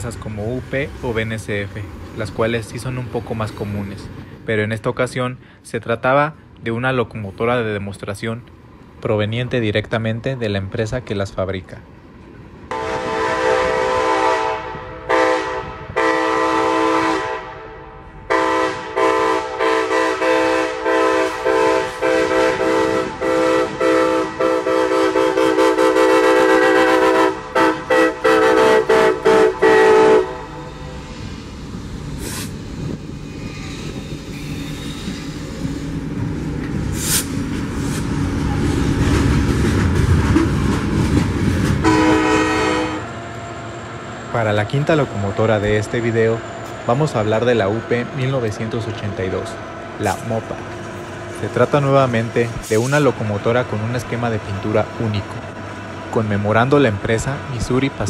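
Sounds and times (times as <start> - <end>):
rumble of engines and wheels: 0.0 - 13.2, 21.4 - 58.0
locomotive air horn blasts: 12.7 - 31.0, 41.8 - 43.1.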